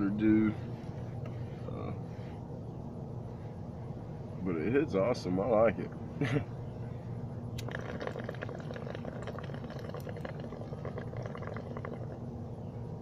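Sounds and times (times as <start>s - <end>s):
water bubbling in a bong: 7.6s - 12.3s.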